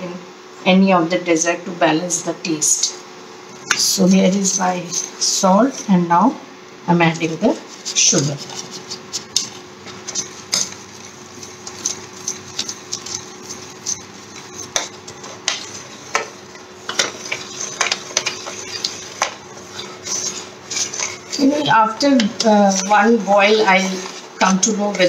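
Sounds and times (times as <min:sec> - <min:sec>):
spoon clinking and scraping pan: 0:11.4 - 0:25.0.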